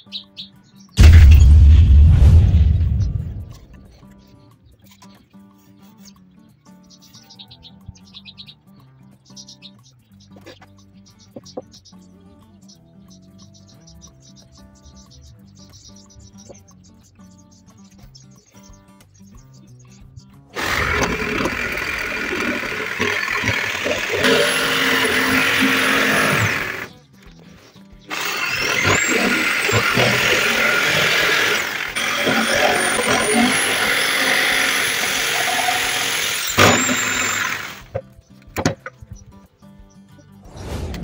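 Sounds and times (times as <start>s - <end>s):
jigsaw cutting wooden board: 20.6s - 26.9s, 28.1s - 37.9s.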